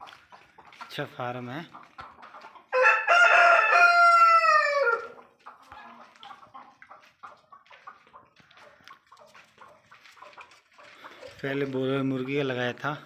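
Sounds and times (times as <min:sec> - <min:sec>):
faint hens clucking: 0:00.0 - 0:13.0
rooster crowing: 0:02.8 - 0:05.2.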